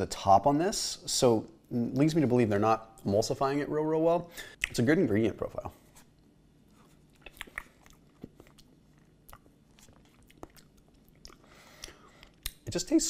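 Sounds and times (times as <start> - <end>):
person eating mouth sounds: 6.9 - 12.6.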